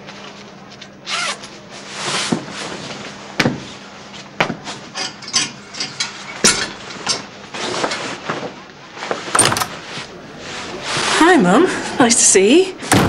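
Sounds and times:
clothes rustling: 6.1 - 12.9.

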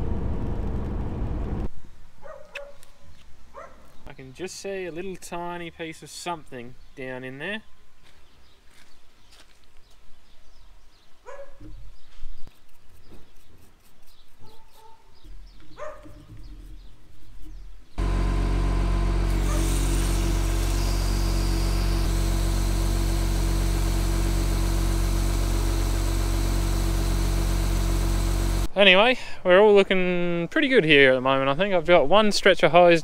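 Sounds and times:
sprayer engine running: 18.0 - 28.7
water spraying from nozzles: 19.2 - 28.7.

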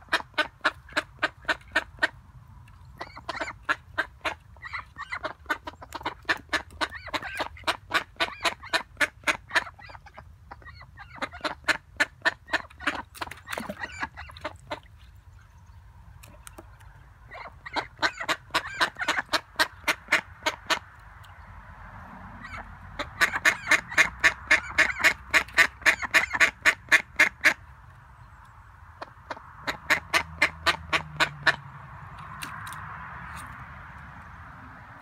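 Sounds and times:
duck quacking: 3.0 - 14.9, 17.3 - 20.9, 22.4 - 27.6.

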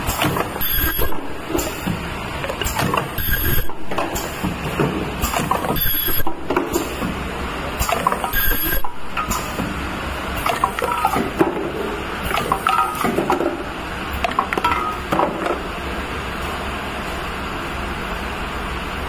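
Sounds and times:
mechanical clicking and clatter: 0.0 - 7.2, 7.8 - 9.7, 10.4 - 11.6
machine humming: 0.0 - 19.0.

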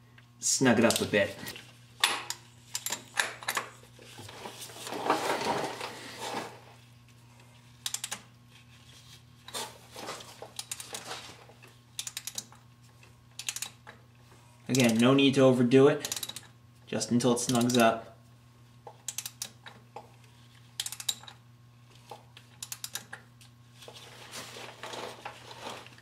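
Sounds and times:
ratchet clicking: 2.3 - 3.0, 7.8 - 8.2, 12.0 - 12.6, 13.4 - 13.9, 16.0 - 16.5, 19.1 - 19.6, 20.8 - 21.4, 22.6 - 23.2
rustling scrape: 4.0 - 6.9, 23.8 - 26.0.

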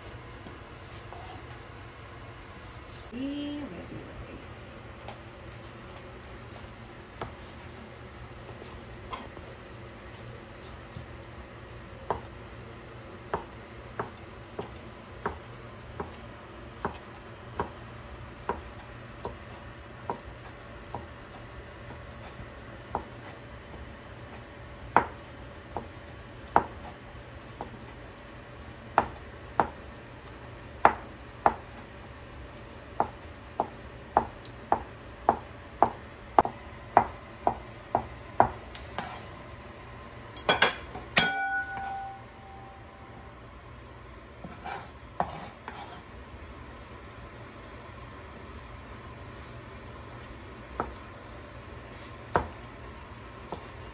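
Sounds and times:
knife tapping cutting board: 33.0 - 39.2, 40.5 - 42.2.

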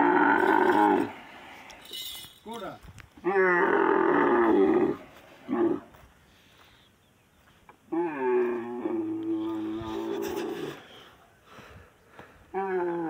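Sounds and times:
camel bellowing: 0.0 - 1.2, 3.2 - 5.9, 7.9 - 10.9, 12.5 - 13.0.

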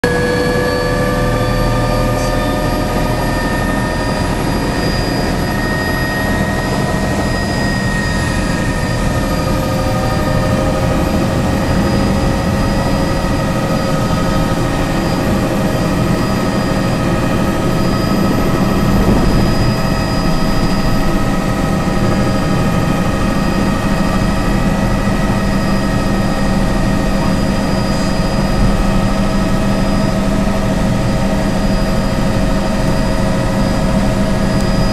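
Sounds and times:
helicopter engine and rotor drone: 0.0 - 34.9
whining tones: 0.0 - 34.9.

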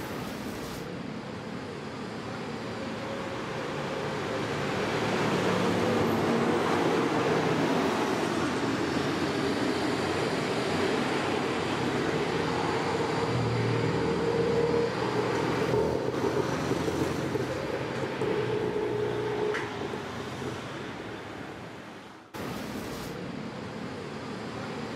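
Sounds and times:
cars and scooters passing: 4.0 - 22.6.

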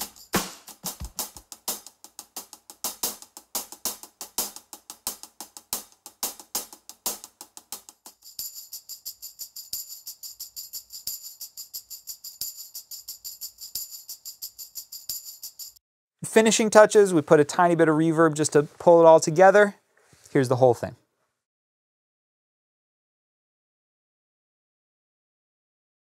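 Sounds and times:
hi-hat struck with a stick: 0.0 - 15.6
tambourine jingles: 0.0 - 15.8.

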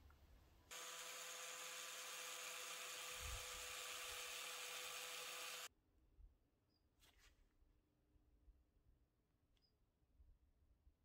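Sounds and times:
small electric drill whining: 0.7 - 5.7.

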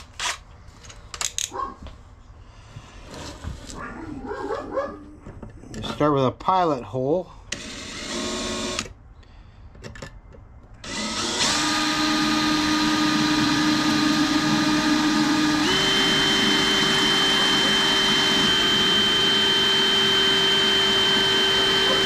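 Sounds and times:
cordless drill whining: 7.5 - 8.9, 10.8 - 22.0.

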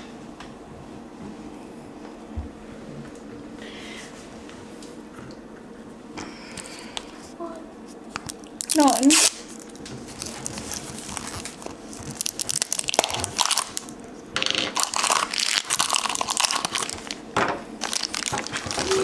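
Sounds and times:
plastic packaging crinkling: 8.2 - 19.0.

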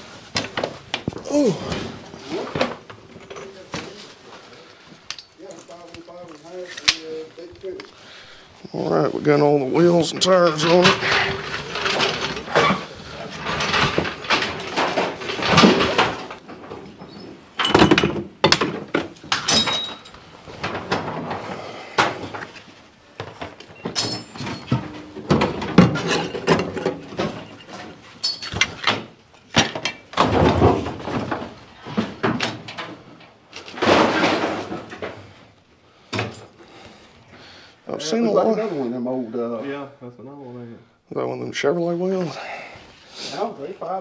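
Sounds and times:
hard objects knocking and clanking: 10.1 - 22.6, 23.2 - 35.4.

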